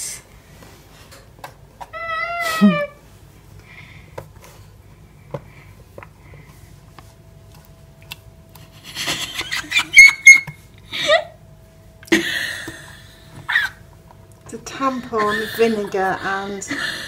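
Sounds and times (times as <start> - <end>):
person shrieking and squealing: 2.0 - 3.0.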